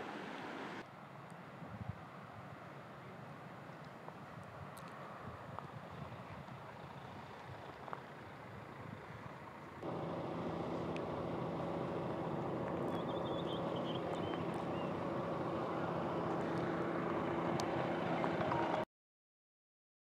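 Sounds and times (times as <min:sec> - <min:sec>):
vehicle engine humming: 0:06.8 - 0:18.8.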